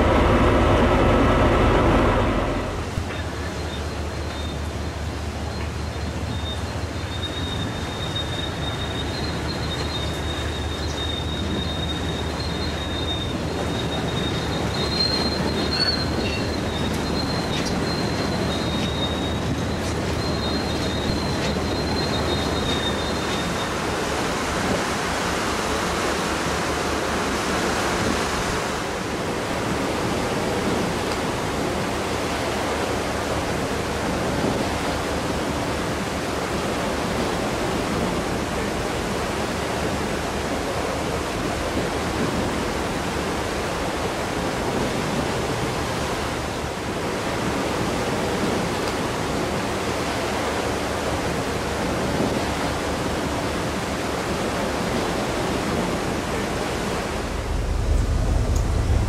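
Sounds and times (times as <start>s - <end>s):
low buffeting rumble: 0.0s - 7.0s, 55.9s - 59.0s
sea water rushing: 0.0s - 59.0s
wind rushing: 56.8s - 59.0s.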